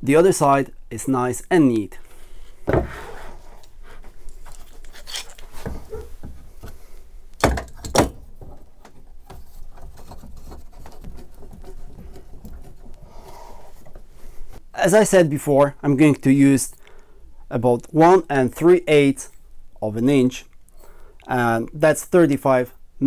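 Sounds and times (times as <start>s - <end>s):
wood knocking: 2.6s - 3.1s, 5.6s - 6.8s, 7.4s - 13.0s.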